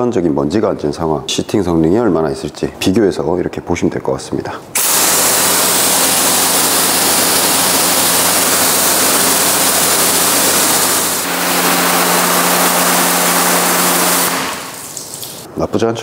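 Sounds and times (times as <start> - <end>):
pressure washer spray hissing: 4.8 - 15.5.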